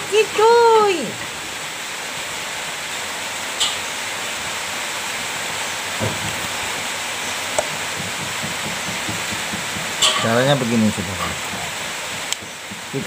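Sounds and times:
steady hiss: 0.0s - 13.0s
soft low knock: 7.6s - 10.4s.

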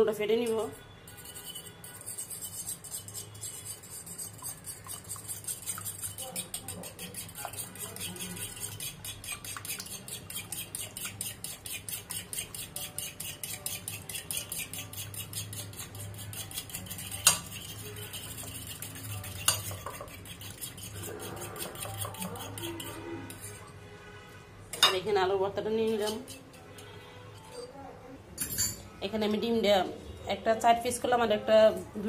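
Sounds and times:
fork clinking against bowl: 1.2s - 23.7s.

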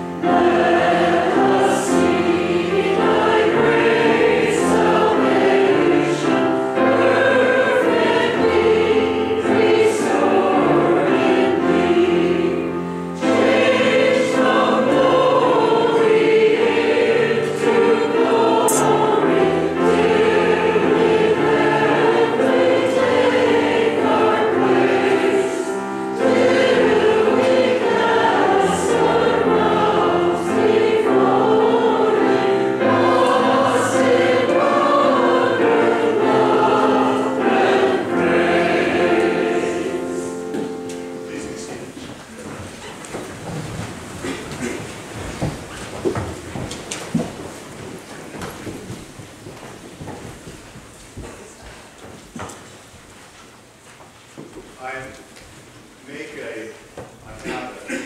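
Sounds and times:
choir singing: 0.0s - 42.5s.

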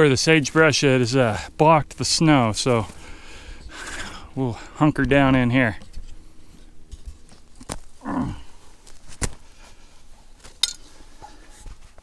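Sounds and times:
person grunting: 8.0s - 8.6s.

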